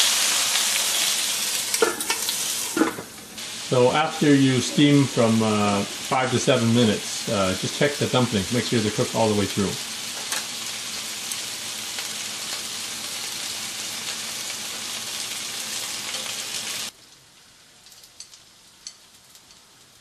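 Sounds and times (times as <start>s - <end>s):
dumplings sizzling in oil: 0.0s - 20.0s.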